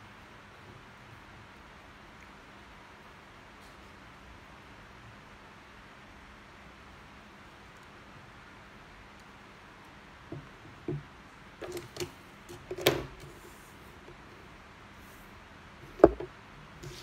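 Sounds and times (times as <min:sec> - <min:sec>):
steady low hiss: 0:00.0 - 0:17.0
soft taps on wooden table: 0:16.0 - 0:16.3.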